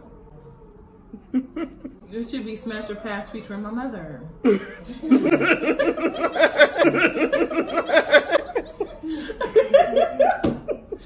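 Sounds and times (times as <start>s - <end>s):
women laughing loudly: 1.2s - 2.1s, 4.4s - 11.0s.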